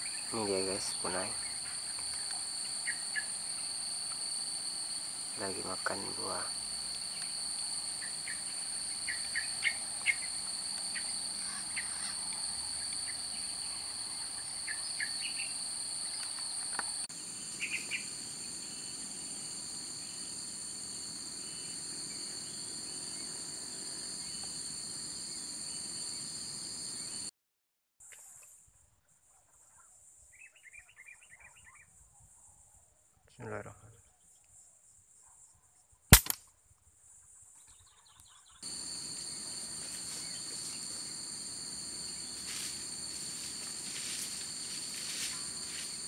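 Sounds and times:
high-pitched insect drone: 0.0 - 27.3, 38.6 - 46.0.

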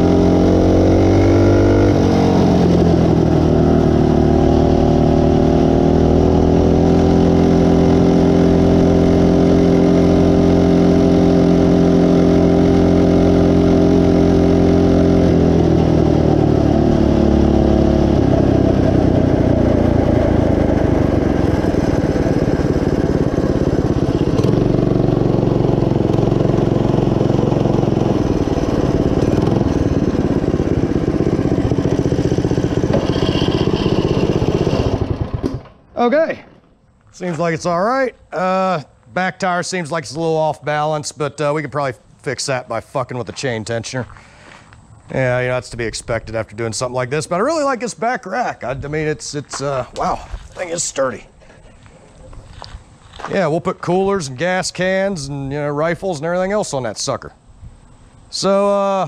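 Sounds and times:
minibike engine running: 0.0 - 35.8.

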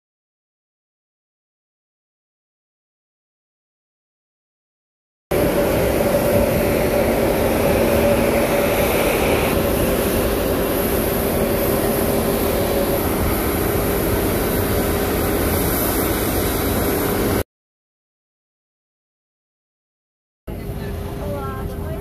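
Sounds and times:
jet aircraft noise: 5.3 - 17.4, 20.5 - 22.0
whining tones: 5.3 - 17.4.

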